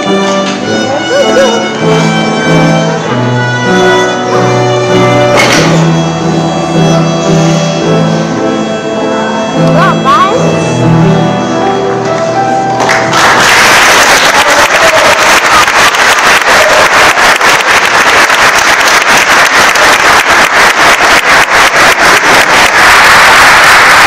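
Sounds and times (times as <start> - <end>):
violin and piano note: 0.0 - 12.9
audience applauding: 12.8 - 24.0.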